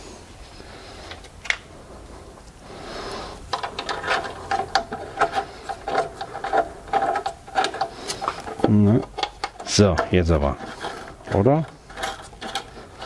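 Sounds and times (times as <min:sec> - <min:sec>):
metal heat shield rattling and clicking: 0:03.5 - 0:13.0.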